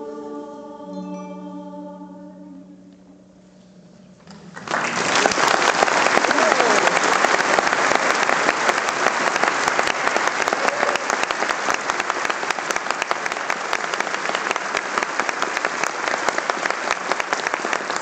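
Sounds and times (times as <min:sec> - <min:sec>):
audience applauding: 0:04.3 - 0:18.0.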